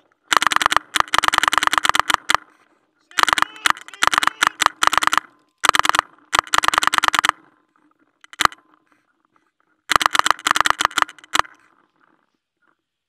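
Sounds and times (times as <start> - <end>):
paintball marker firing rapidly: 0.3 - 7.6, 8.2 - 8.7, 9.9 - 12.2.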